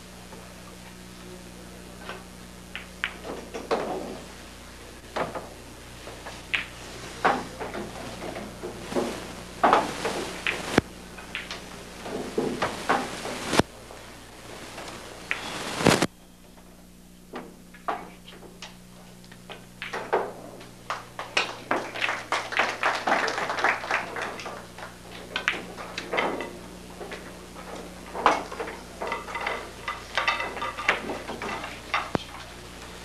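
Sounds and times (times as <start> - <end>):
steady low hum: 0.0 - 33.0
pool balls clacking: 2.1 - 4.3, 5.1 - 13.6, 19.5 - 33.0.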